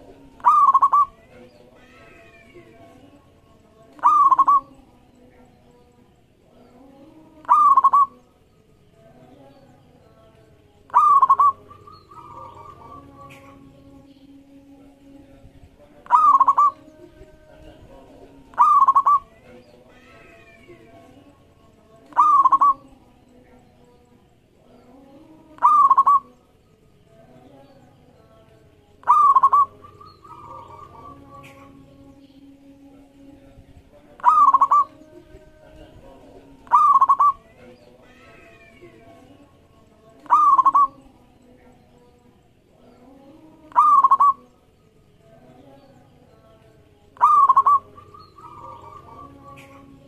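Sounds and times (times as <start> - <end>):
dove cooing: 0.0 - 2.5, 4.0 - 5.0, 7.4 - 8.2, 10.8 - 13.8, 16.0 - 20.7, 22.1 - 23.1, 25.2 - 26.3, 29.0 - 32.0, 34.2 - 39.4, 40.0 - 41.2, 43.1 - 44.5, 47.1 - 50.0.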